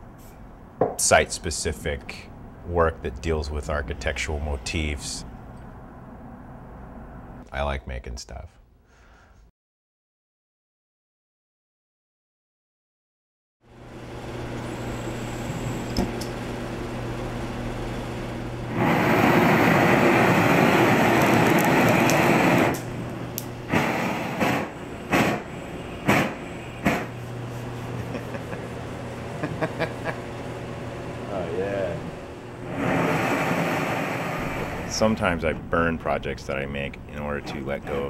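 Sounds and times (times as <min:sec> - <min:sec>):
gas burner flame hissing: 0:13.8 - 0:38.0
burner roar: 0:14.3 - 0:35.5
sharp pops: 0:18.8 - 0:27.2.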